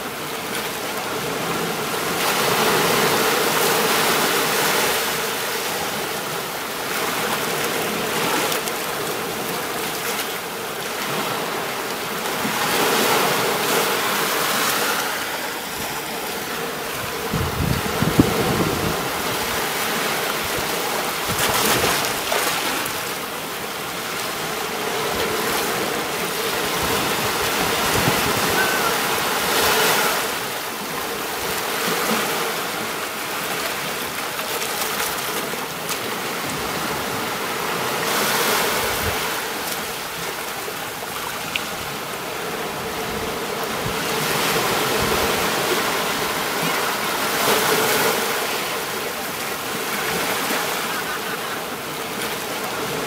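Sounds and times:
sea waves washing onto beach: 0:00.0 - 0:53.0.

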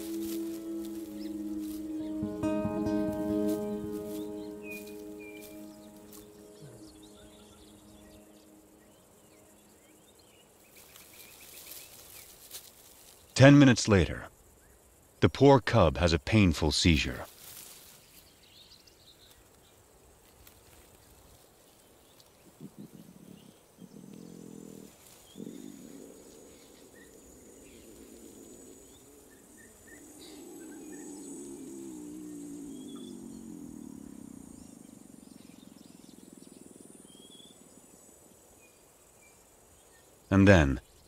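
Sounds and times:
faint bird chirps: 0:00.0 - 0:12.4, 0:21.1 - 0:41.0
young lion moaning: 0:22.6 - 0:37.3.

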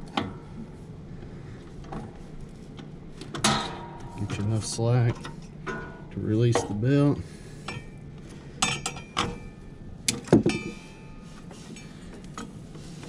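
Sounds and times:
metal bar clanking on metal: 0:03.4 - 0:04.4, 0:08.6 - 0:09.5.

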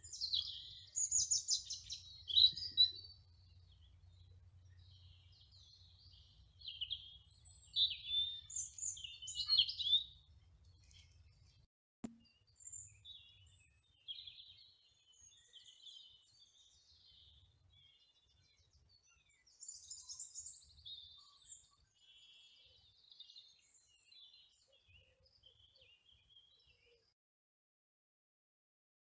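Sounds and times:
songbirds chirping and trilling: 0:00.0 - 0:11.6, 0:12.2 - 0:27.1.

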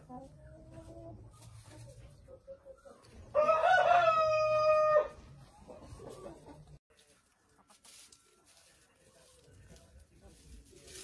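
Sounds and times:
hen clucking: 0:00.0 - 0:06.8
rooster crowing: 0:03.3 - 0:05.1.

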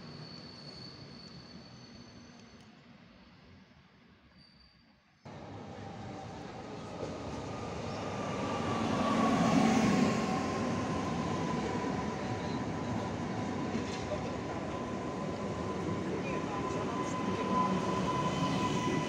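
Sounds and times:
train wheel rumble: 0:05.3 - 0:19.0.

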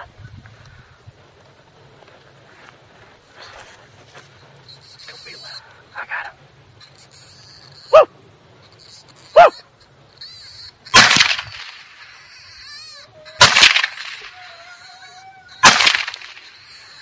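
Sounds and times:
coyote yelps: 0:04.6 - 0:05.9, 0:06.8 - 0:17.0
coyote screams: 0:06.8 - 0:08.1, 0:08.7 - 0:17.0.

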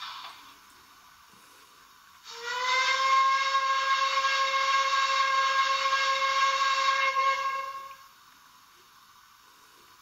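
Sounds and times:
steam hissing: 0:00.0 - 0:10.0
steam whistle blast: 0:02.2 - 0:08.2.

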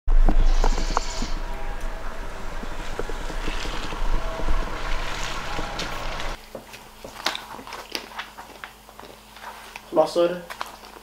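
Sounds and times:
wind buffeting microphone: 0:00.1 - 0:06.4.

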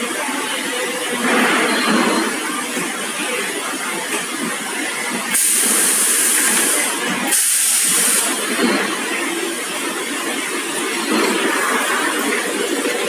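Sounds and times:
steady machine noise: 0:00.0 - 0:13.0
pneumatic press hissing air: 0:05.3 - 0:08.5.

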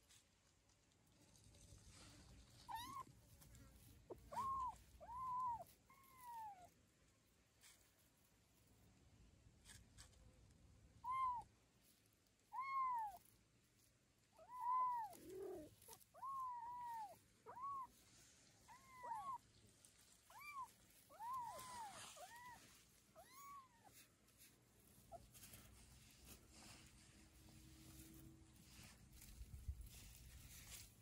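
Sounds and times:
kitten mewing: 0:04.1 - 0:06.8, 0:20.2 - 0:24.1.

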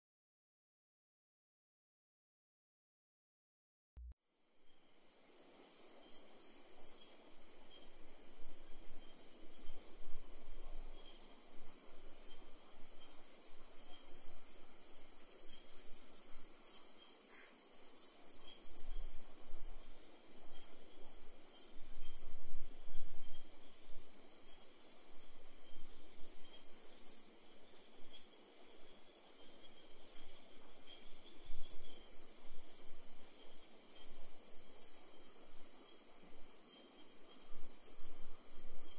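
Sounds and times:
crickets chirping: 0:04.3 - 0:38.9.

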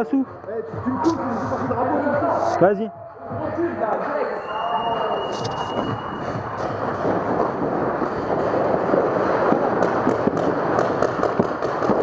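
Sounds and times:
paintballs smacking inflatable bunkers: 0:07.0 - 0:12.0
paintball markers firing: 0:08.4 - 0:12.0.

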